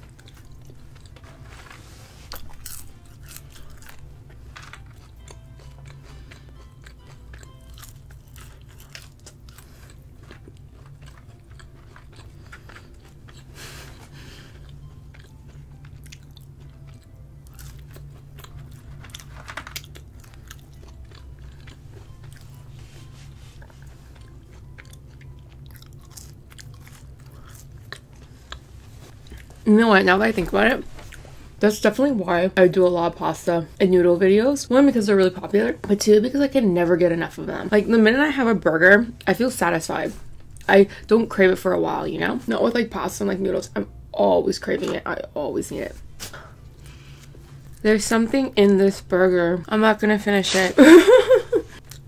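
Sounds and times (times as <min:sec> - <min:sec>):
chewing french fries: 0:00.0 - 0:29.7, 0:50.8 - 0:52.0.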